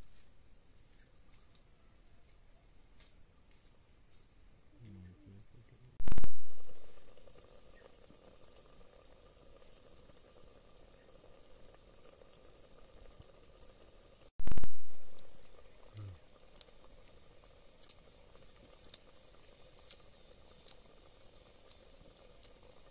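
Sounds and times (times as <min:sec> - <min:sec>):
curry bubbling in a pot: 0:06.3 - 0:22.9.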